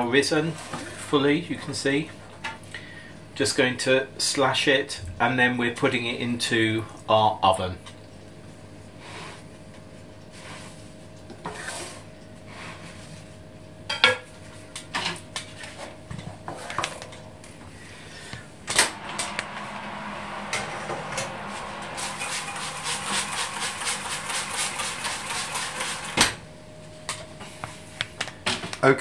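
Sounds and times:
steady rush: 0:18.5 - 0:26.7.

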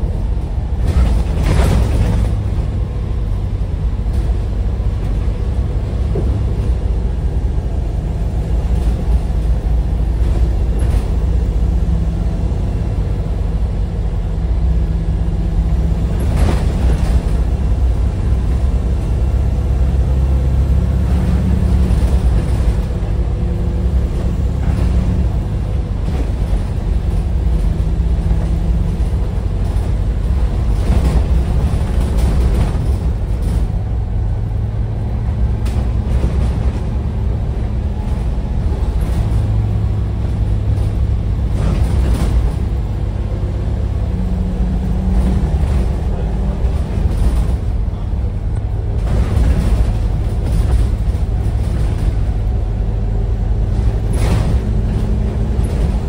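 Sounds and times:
bus diesel engine drone: 0:00.0 - 0:56.0
knocks and rattles: 0:00.8 - 0:02.8, 0:53.7 - 0:56.0.

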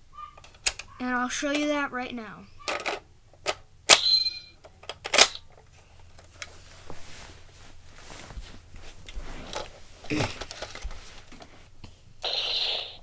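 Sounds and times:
plastic handling rattles: 0:09.5 - 0:11.5.

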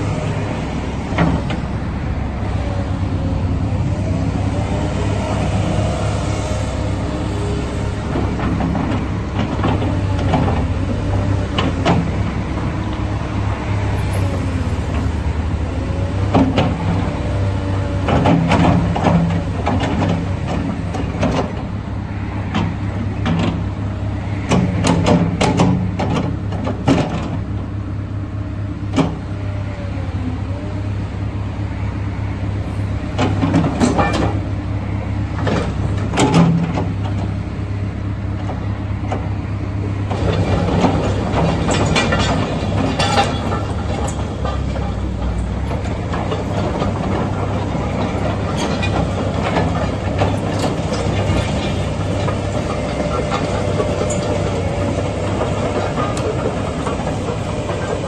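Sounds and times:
excavator diesel engine running: 0:00.0 - 0:58.0
metallic clanks from tracks: 0:33.1 - 0:34.5, 0:40.1 - 0:58.0.

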